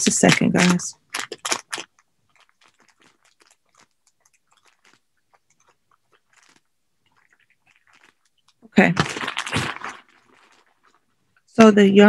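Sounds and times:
packaging crinkling and rustling: 9.0s - 11.0s.

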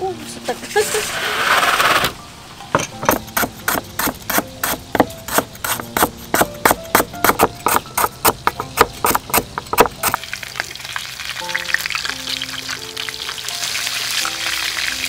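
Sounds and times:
cleaver chopping on wooden board: 2.8s - 10.2s.

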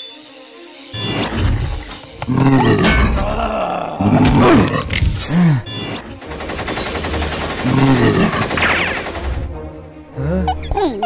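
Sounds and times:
monster growling and snarling: 2.2s - 5.5s, 7.6s - 8.5s.

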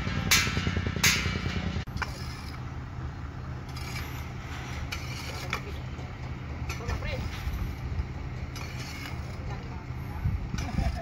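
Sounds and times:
engine running: 0.0s - 11.0s
hoes scraping through soil: 1.9s - 2.7s, 3.6s - 11.0s.

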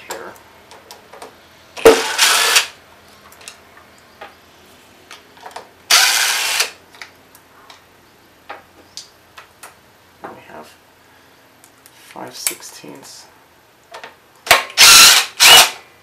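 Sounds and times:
cordless impact driver: 1.8s - 2.8s, 5.9s - 6.8s, 14.5s - 15.8s.

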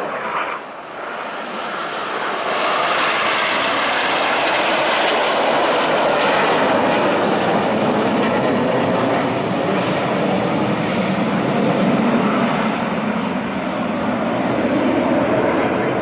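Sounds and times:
jet aircraft passing overhead: 0.0s - 16.0s.

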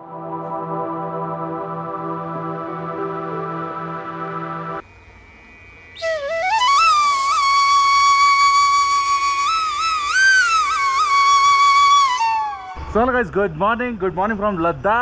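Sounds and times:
solo flute melody: 0.0s - 4.8s, 6.0s - 12.9s.

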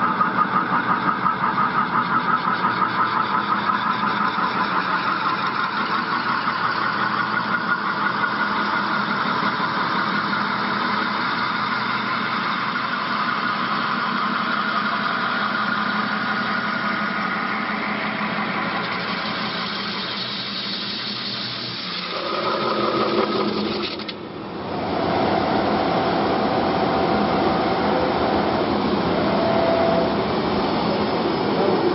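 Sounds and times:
metal spinning lathe running: 0.0s - 31.9s
ringing mechanical whine: 0.0s - 31.9s.

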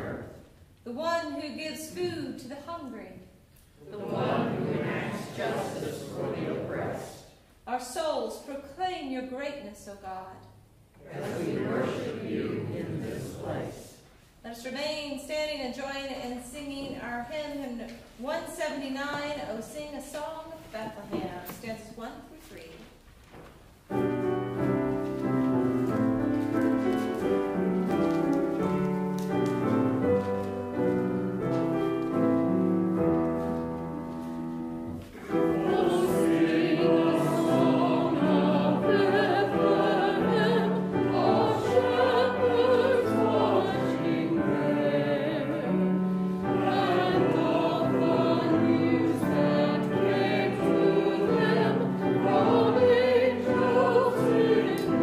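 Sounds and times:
congregation singing a hymn: 0.0s - 0.4s, 3.8s - 7.4s, 11.0s - 14.0s, 24.0s - 55.0s.

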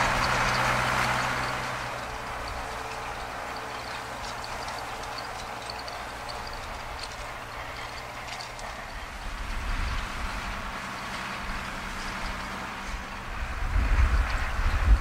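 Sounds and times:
low uneven rumble: 0.0s - 15.0s
tractor diesel engine running: 0.0s - 15.0s.

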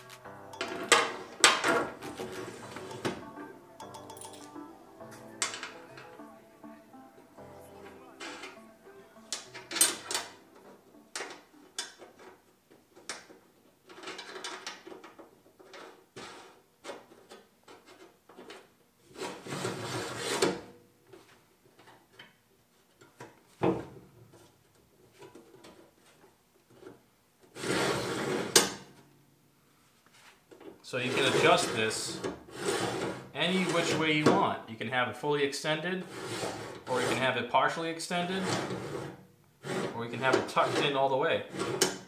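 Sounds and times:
metal scraping slides: 31.0s - 34.1s, 36.0s - 37.4s, 38.3s - 42.0s.

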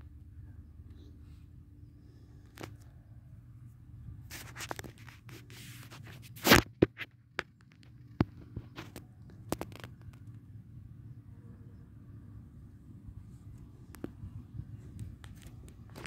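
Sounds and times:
faint low hum: 0.0s - 6.3s, 7.1s - 16.0s
sharp scrape: 4.2s - 6.7s
handling noise clicks and rustles: 4.2s - 10.5s, 13.5s - 16.0s.

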